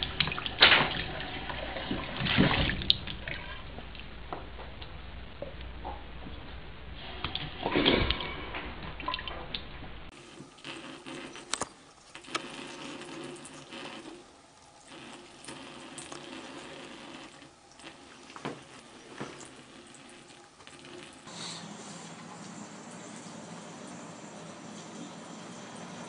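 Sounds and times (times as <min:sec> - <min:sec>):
small clicks and splashes: 0:00.0 - 0:04.1, 0:07.2 - 0:09.7, 0:10.3 - 0:21.3
faucet water trickling into sink: 0:07.0 - 0:21.3.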